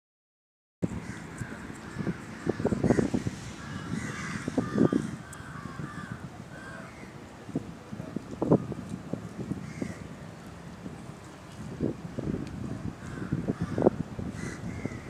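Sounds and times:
crows cawing: 0:01.0 - 0:07.1, 0:09.6 - 0:10.0, 0:13.0 - 0:15.0.

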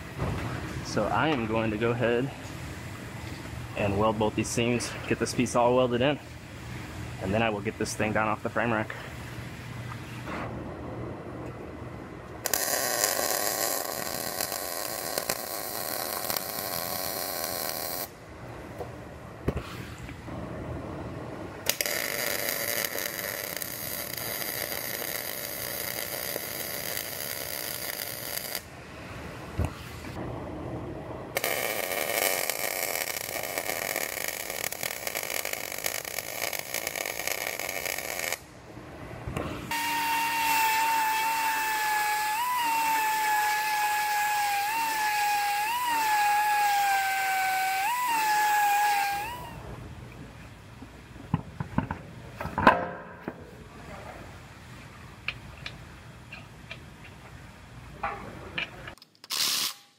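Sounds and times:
welder arc crackle: 0:12.4 - 0:18.2, 0:21.6 - 0:28.7, 0:31.3 - 0:38.5, 0:39.7 - 0:49.6, 0:59.3 - 0:59.9.

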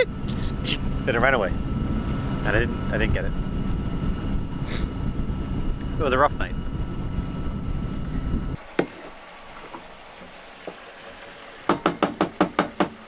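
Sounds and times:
wind rumble on microphone: 0:00.0 - 0:08.6
pan sizzling: 0:08.6 - 0:13.0.

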